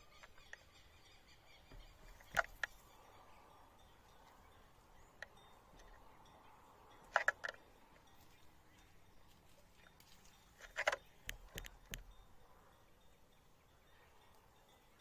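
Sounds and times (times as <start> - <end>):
birds pecking sharp taps: 0.1 - 0.8, 1.6 - 2.9, 10.0 - 12.1.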